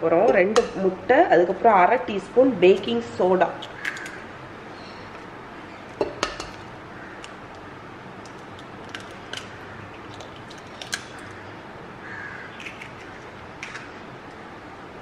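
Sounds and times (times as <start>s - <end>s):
eggshells cracking on glass bowl: 3.6s - 4.2s, 5.9s - 11.5s, 12.5s - 14.0s.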